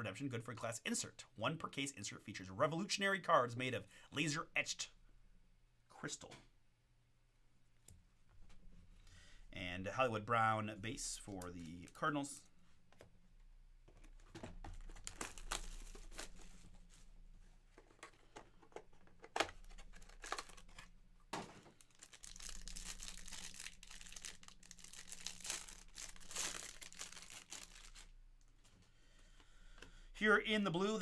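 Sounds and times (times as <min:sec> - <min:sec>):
wrapper crinkling as torn: 0:14.8 - 0:16.4, 0:19.6 - 0:20.9, 0:21.8 - 0:28.2.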